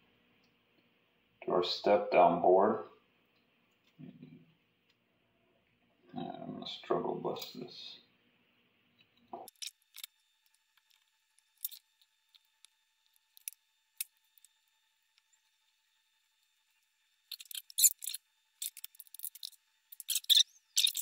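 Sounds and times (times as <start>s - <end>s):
wires and circuit board clicking: 9.0s - 15.3s, 17.3s - 21.0s.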